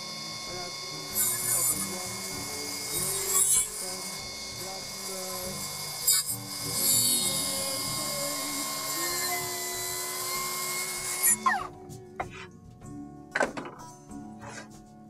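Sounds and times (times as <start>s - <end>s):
track saw cutting wood: 0.0s - 11.7s.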